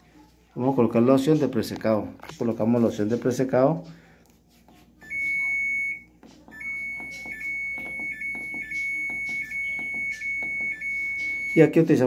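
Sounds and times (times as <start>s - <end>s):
washing machine beeping: 5.0s - 12.0s.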